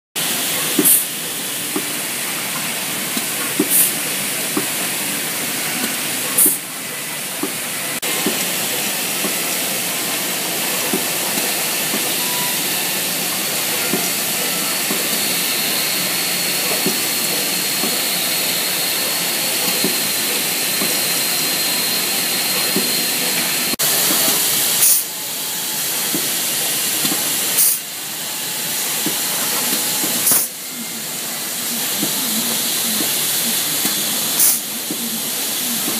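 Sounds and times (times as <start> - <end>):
pneumatic machinery hissing: 0.2 - 35.9
compressed air blasts: 0.7 - 1.9, 3.1 - 4.8.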